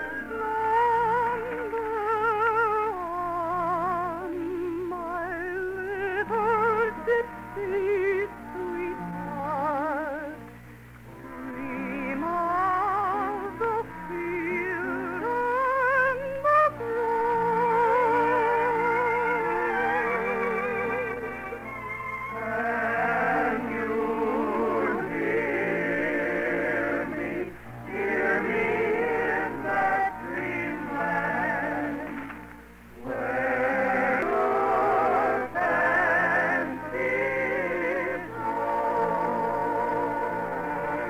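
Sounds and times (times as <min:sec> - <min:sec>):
orchestral accompaniment: 0:06.0 - 0:41.0
person singing with vibrato: 0:11.1 - 0:21.7.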